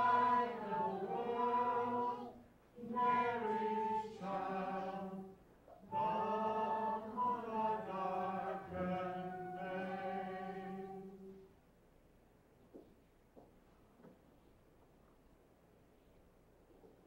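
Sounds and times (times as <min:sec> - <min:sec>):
choir singing: 0:00.0 - 0:11.4.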